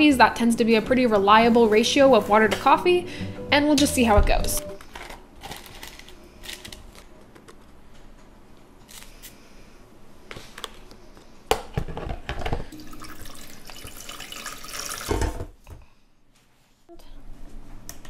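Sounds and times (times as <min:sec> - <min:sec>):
water pouring from plastic pitcher: 0:12.7 - 0:15.4.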